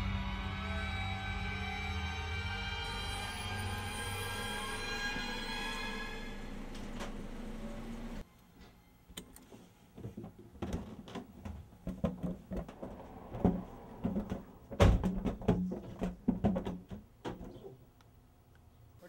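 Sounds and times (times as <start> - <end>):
knocks and thumps in car cabin: 10.1 - 17.7.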